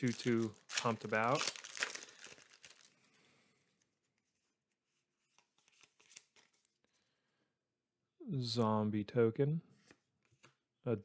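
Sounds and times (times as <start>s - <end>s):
trading cards being handled: 0.0s - 2.9s, 4.0s - 6.9s.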